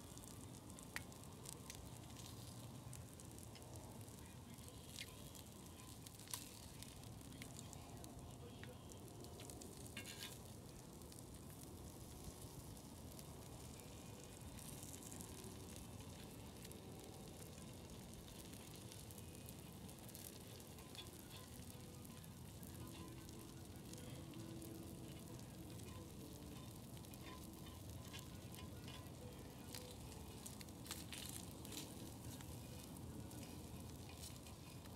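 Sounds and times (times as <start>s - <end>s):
meat sizzling on a griddle: 0.0s - 34.9s
metal utensils clicking on griddle: 20.1s - 34.9s.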